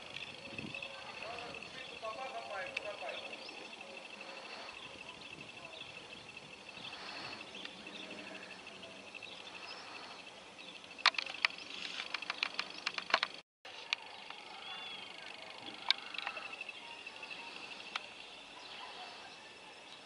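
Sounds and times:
sharp clicks: 10.8s - 14.4s.

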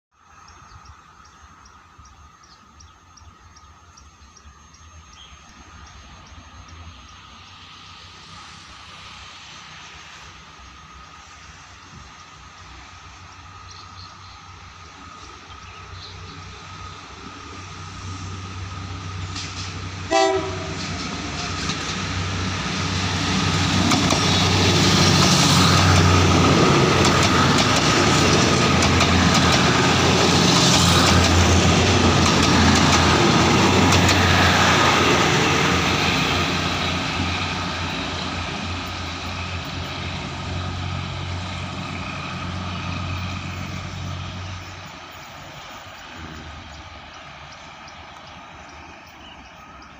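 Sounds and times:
train engine hum: 0.2s - 49.9s
train wheels clattering on rails: 17.2s - 49.9s
train horn toot: 20.0s - 21.7s.

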